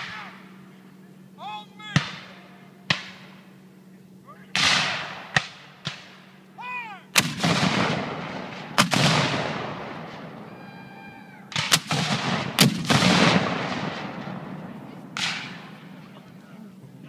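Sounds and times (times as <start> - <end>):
cannon blasts with echo: 1.9 - 3.5, 4.5 - 6.4, 7.1 - 10.5, 11.5 - 16.1.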